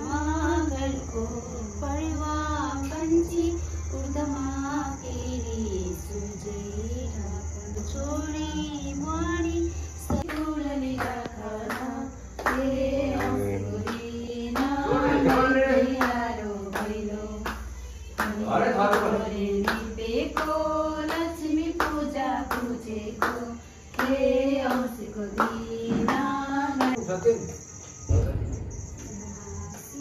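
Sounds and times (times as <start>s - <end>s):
group singing: 0.0s - 27.0s
hand clapping in time: 10.2s - 27.0s.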